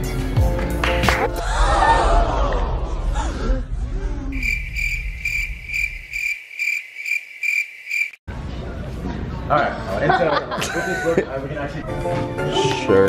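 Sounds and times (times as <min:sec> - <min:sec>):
music: 0:00.0 - 0:01.5, 0:11.6 - 0:13.0
cricket chirping sound effect: 0:04.4 - 0:08.2.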